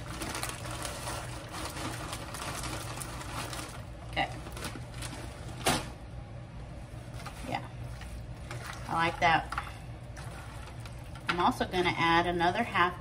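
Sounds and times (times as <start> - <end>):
frozen vegetables rattling: 0.0 - 5.8
plastic bag crinkling: 0.0 - 6.0
steady low hum: 0.0 - 13.0.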